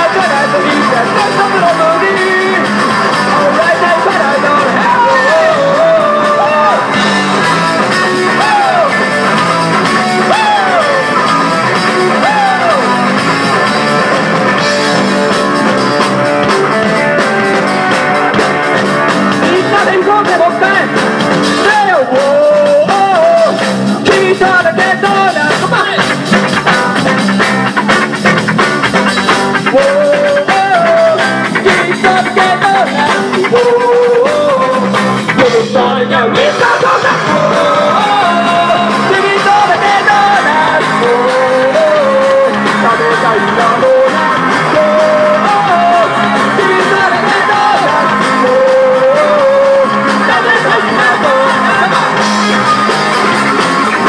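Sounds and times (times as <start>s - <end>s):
man singing: 0.0s - 13.9s, 19.0s - 27.2s, 29.6s - 53.4s
bass guitar: 0.0s - 54.0s
drums: 0.0s - 54.0s
electric guitar: 0.0s - 54.0s.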